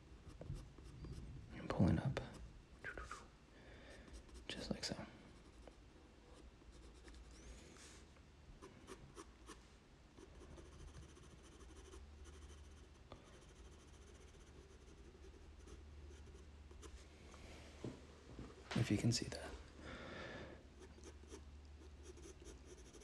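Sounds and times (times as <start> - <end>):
pencil scratching on paper: 6.3 - 7.5, 10.2 - 17.0, 20.8 - 23.0.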